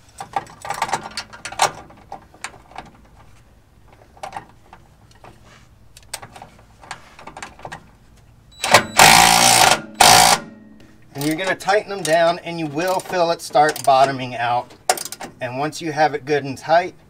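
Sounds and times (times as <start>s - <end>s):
hand tools clicking and knocking: 11.2s - 15.4s.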